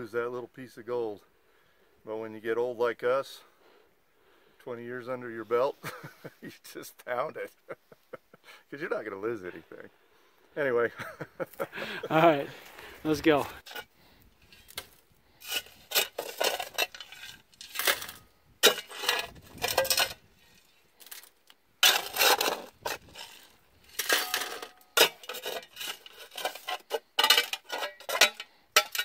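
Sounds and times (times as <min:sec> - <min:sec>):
shovel scraping gravelly soil: 0:12.1 - 0:29.0.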